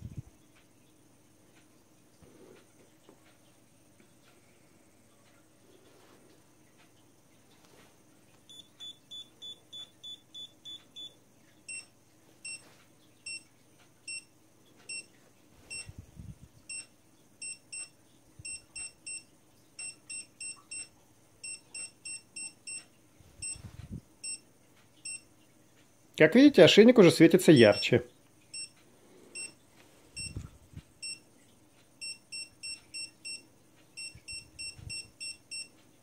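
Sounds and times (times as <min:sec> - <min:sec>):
electronic collar beeping: 0:08.5 - 0:12.7, 0:14.9 - 0:15.1, 0:16.7 - 0:19.2, 0:19.8 - 0:22.8, 0:23.4 - 0:23.6, 0:25.0 - 0:25.2, 0:28.5 - 0:28.8, 0:29.4 - 0:29.6, 0:30.2 - 0:30.4, 0:31.0 - 0:31.2, 0:32.0 - 0:33.4, 0:34.0 - 0:35.7.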